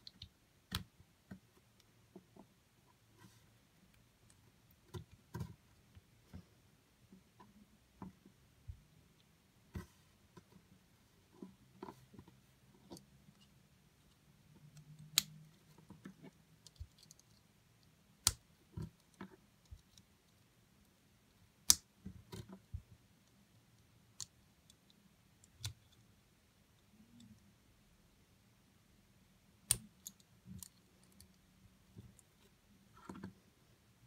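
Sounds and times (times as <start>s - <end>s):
plastic parts clicking and tapping: 11.4s - 17.5s.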